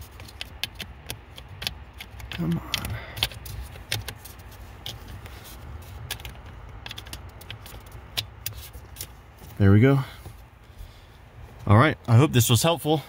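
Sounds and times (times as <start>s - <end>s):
plastic clicks and rubbing: 0.0s - 9.2s.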